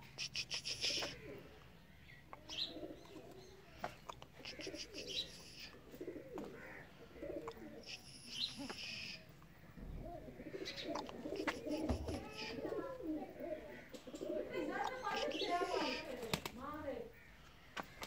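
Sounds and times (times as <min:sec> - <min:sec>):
bird chirping: 0:00.0 - 0:06.4, 0:07.2 - 0:12.6
pigeons cooing: 0:00.0 - 0:18.0.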